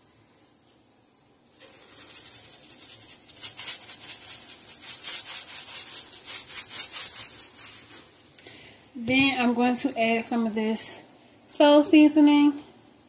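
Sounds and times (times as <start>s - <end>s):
seasoning shaker rattling: 1.5s - 8.1s.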